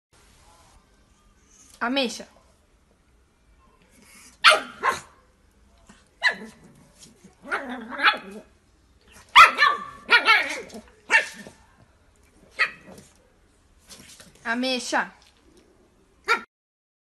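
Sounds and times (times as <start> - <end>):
puppy barking: 4.4 - 5.2, 6.2 - 6.6, 7.4 - 8.5, 9.2 - 11.5, 12.6 - 13.0, 16.2 - 16.5.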